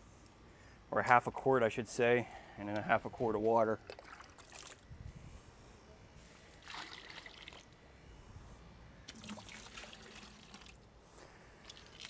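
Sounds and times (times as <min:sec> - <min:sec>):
liquid trickling into plastic bucket: 0:03.8 - 0:04.8, 0:06.6 - 0:07.7, 0:09.1 - 0:10.8, 0:11.6 - 0:12.0.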